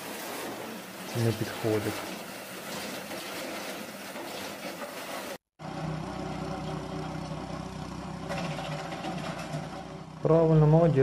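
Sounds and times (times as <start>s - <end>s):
firewood processor running: 0.0s - 11.0s
chipper motor humming: 5.6s - 11.0s.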